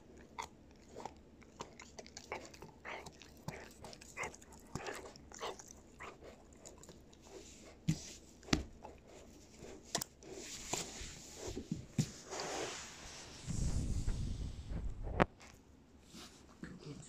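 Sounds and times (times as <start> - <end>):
puppy crunching a hard chew: 0.0 - 7.3.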